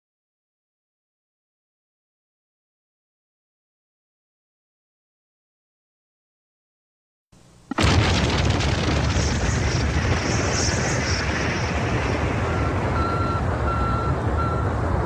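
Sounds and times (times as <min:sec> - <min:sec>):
rocket launch roar: 0:07.7 - 0:14.4
short electronic beeps: 0:12.5 - 0:14.7.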